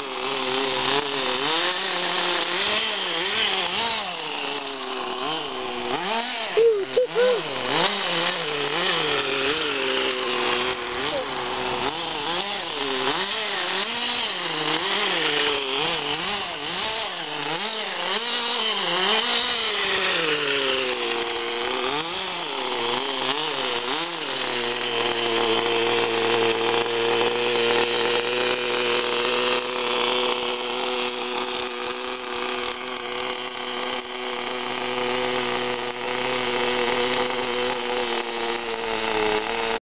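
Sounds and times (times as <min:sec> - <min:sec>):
model engine revving: 0:00.0 - 0:39.8.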